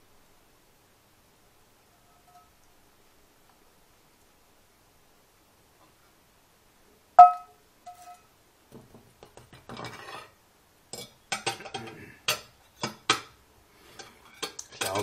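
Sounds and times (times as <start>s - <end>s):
frying pan and cutlery knocking: 7.2s - 10.3s, 10.9s - 13.4s, 14.0s - 15.0s.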